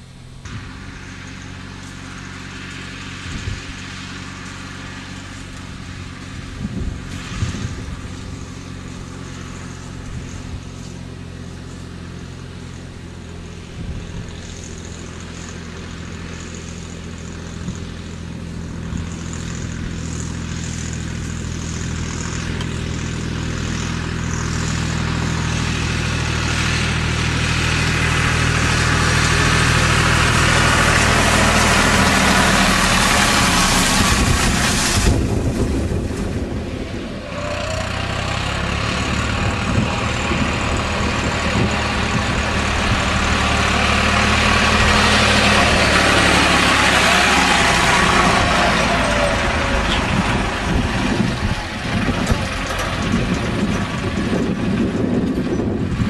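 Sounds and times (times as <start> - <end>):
tractor diesel engine: 0.0 - 56.0
hay rake tines rustling hay: 18.9 - 55.2.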